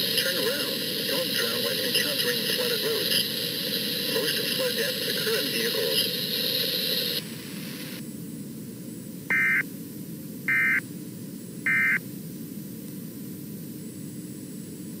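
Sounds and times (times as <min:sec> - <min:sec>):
steady hiss: 0:00.0 - 0:08.1
digital data tone bursts: 0:09.3 - 0:09.6, 0:10.5 - 0:10.8, 0:11.7 - 0:12.0.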